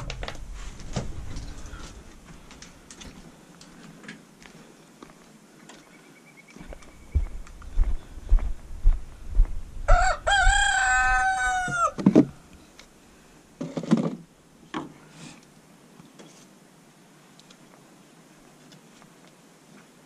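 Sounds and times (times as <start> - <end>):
rooster crowing: 9.9 - 12.0.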